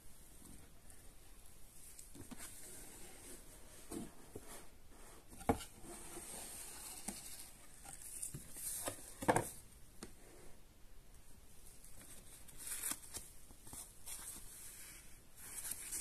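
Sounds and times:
cardboard scraping and rustling: 2.2s - 9.6s.

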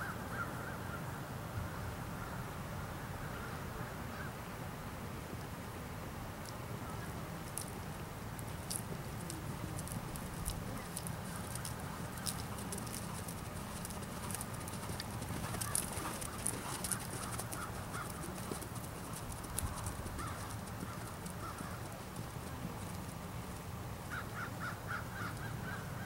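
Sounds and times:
horse hoofbeats on sand: 8.6s - 23.2s.

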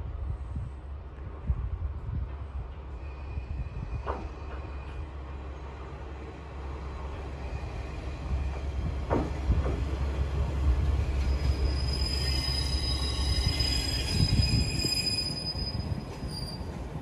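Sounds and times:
diesel railcar engine rumbling: 0.0s - 17.0s
brief falling squeals: 11.2s - 16.7s.

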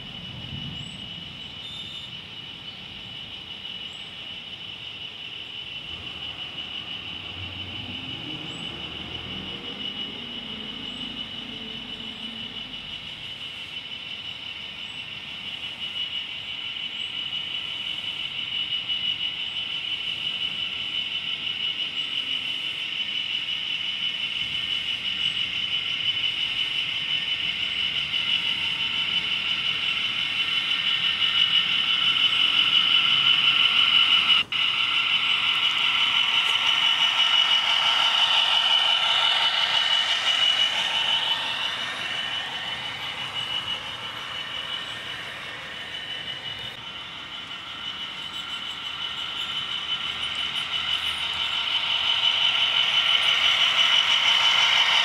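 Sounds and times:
model train motor whine: 0.0s - 55.0s
wheels rolling on rails: 19.3s - 55.0s.

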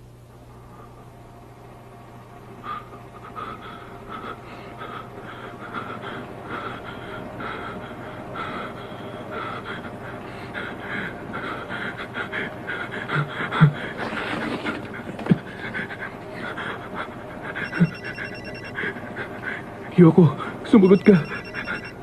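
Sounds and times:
steady low hum: 0.0s - 22.0s
person panting heavily: 2.6s - 19.7s.

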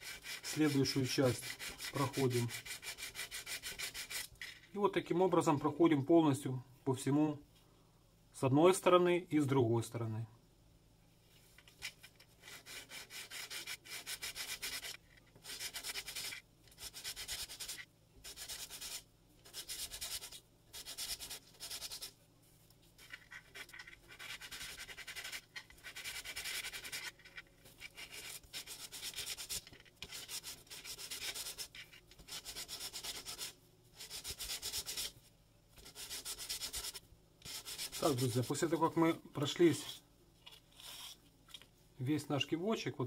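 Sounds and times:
sandpaper rubbing plastic: 0.0s - 4.3s, 12.4s - 22.2s, 23.0s - 35.2s, 35.8s - 39.0s.

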